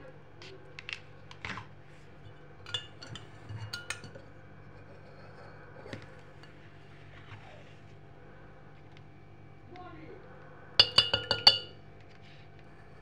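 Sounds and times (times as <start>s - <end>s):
spoon clinking against cup: 2.7s - 4.2s, 10.8s - 11.8s.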